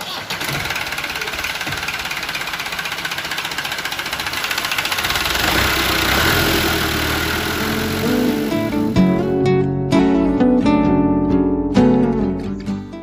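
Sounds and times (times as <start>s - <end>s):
diesel tractor engine idling: 0.0s - 9.4s
music: 8.0s - 13.0s.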